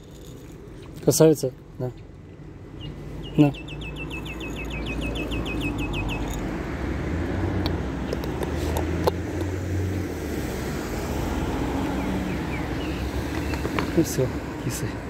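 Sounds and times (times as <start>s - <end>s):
road traffic rumble: 0.0s - 15.0s
bird trilling: 2.7s - 6.5s.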